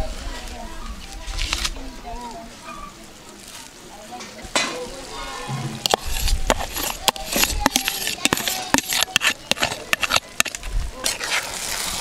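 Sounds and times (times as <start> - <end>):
metal spoon scraping frying pan: 5.8 - 12.0.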